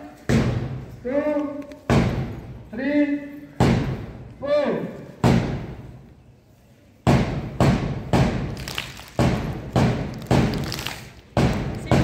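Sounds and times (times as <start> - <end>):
loud sharp thuds: 7.0 - 12.0.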